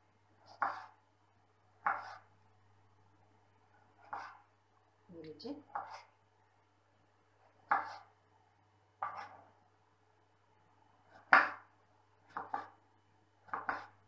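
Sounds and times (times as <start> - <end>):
knife chopping on wooden board: 0.4 - 1.0, 1.8 - 2.3, 4.0 - 4.4, 5.7 - 6.1, 7.6 - 8.1, 9.0 - 9.4, 11.1 - 11.7, 12.3 - 12.8, 13.4 - 14.0.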